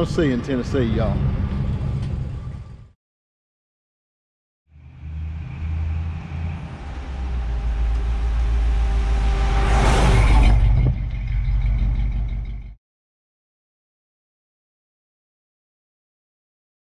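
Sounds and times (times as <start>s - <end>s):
vehicle engine rumbling: 0.0s - 3.0s, 4.7s - 12.8s
vehicle rushing past overhead: 4.7s - 12.2s.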